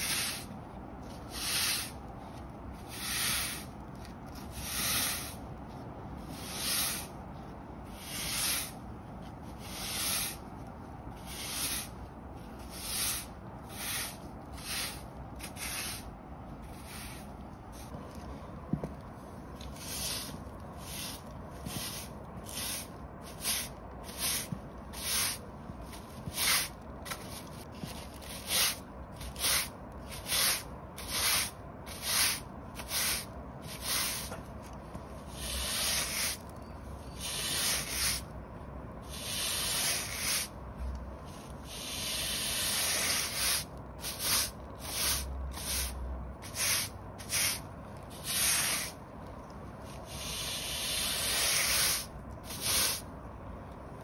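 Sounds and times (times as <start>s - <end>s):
push broom sweeping paving: 0.0s - 38.4s, 39.0s - 53.1s.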